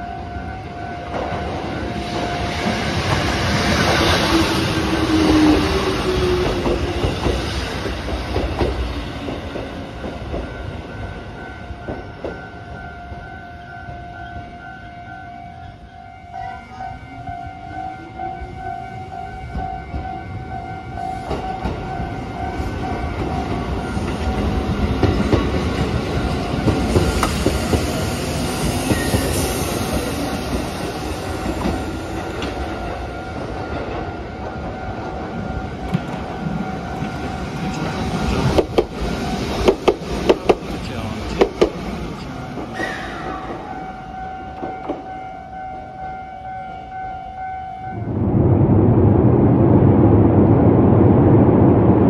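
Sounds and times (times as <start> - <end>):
train rumbling: 0.0 - 52.0
steady high tone: 43.6 - 50.7.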